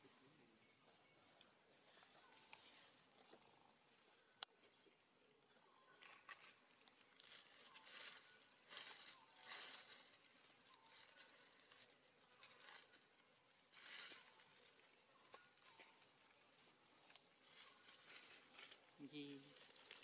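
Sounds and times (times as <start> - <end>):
rustling in dry leaves: 5.8 - 20.0.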